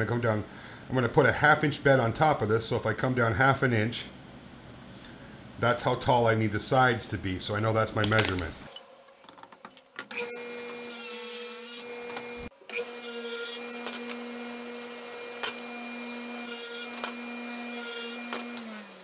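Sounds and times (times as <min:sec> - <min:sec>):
table saw cutting plywood: 0:10.1 - 0:19.0.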